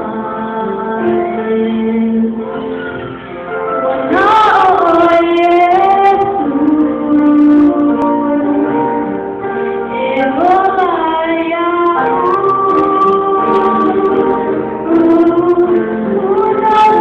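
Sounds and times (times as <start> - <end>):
girls and women singing: 3.9 - 9.0, 9.9 - 17.0.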